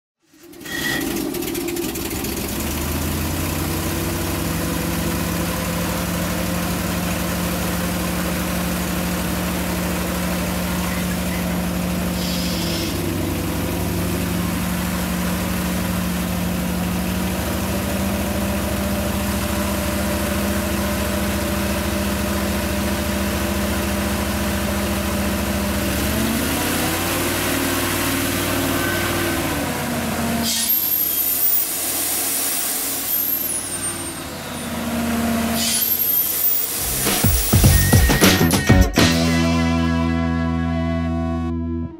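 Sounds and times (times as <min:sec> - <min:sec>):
engine and air compressor running: 0:00.2 - 0:38.5
loud hiss of air release: 0:12.0 - 0:13.0.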